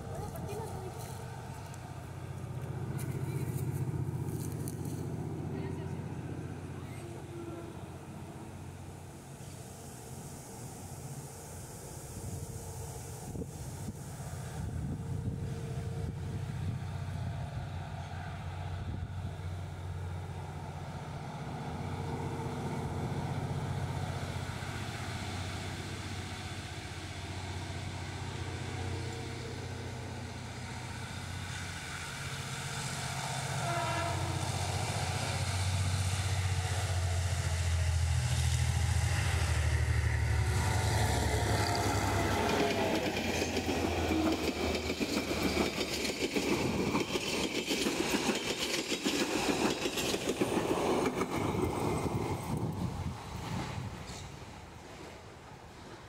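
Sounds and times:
diesel locomotive engine drone: 0:00.0 - 0:56.0
train wheels clattering over rail joints: 0:40.8 - 0:52.8.

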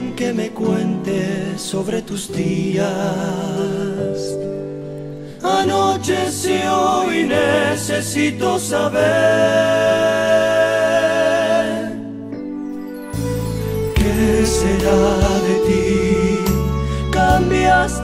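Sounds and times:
male voices singing in harmony: 0:00.0 - 0:04.5, 0:05.4 - 0:12.2, 0:14.0 - 0:18.0
bass line: 0:13.2 - 0:18.0.

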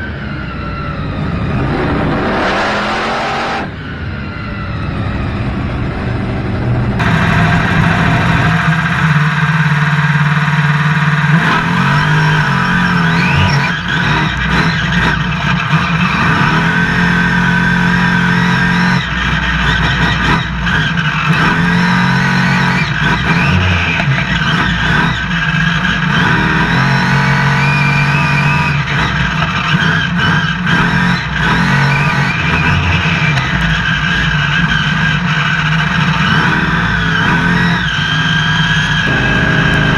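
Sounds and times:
truck engine revving: 0:00.0 - 0:39.9.

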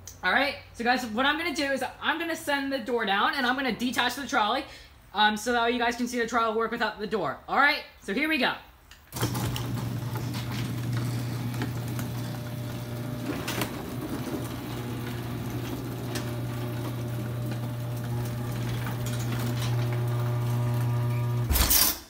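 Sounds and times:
garage door opener motor hum: 0:09.1 - 0:22.0.

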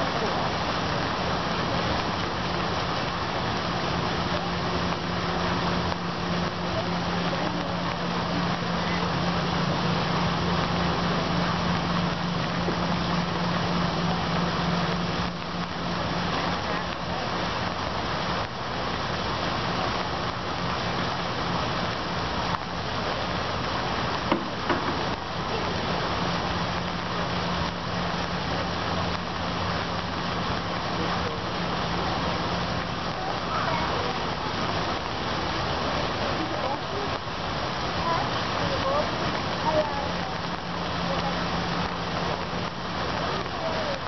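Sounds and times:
low engine hum: 0:00.0 - 0:44.0
rain hissing: 0:00.0 - 0:44.0
small knocks: 0:24.3 - 0:25.1.

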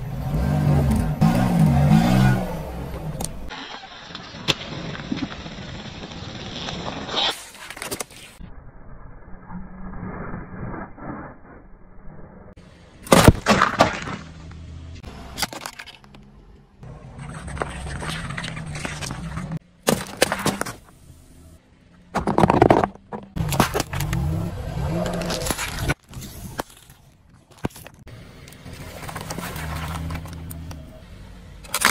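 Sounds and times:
tyre crushing small objects: 0:13.0 - 0:14.4, 0:22.1 - 0:24.4, 0:25.0 - 0:28.1, 0:31.6 - 0:31.9.

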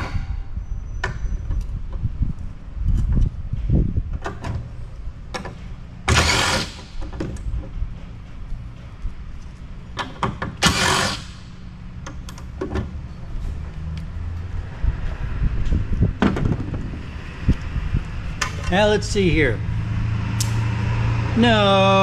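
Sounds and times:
impact driver bursts: 0:06.1 - 0:07.0, 0:10.6 - 0:11.5.

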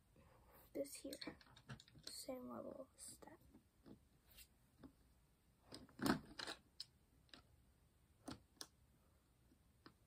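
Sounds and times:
plastic pieces clicking: 0:01.0 - 0:02.2, 0:05.7 - 0:07.5.

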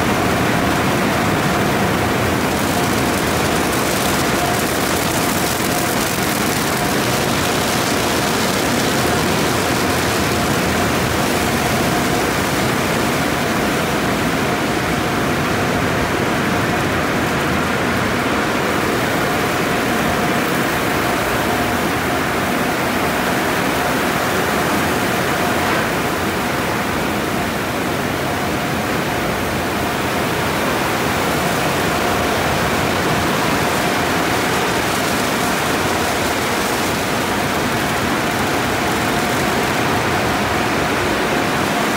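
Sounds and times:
faint steady whine: 0:00.0 - 0:41.9.

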